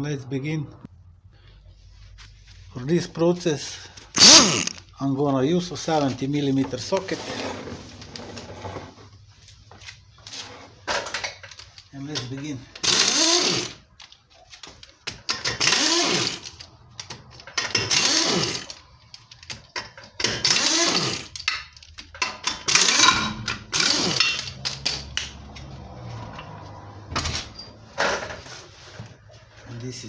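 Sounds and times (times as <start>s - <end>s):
impact wrench hammering: 4.2s - 4.8s, 15.1s - 18.8s, 19.8s - 25.3s.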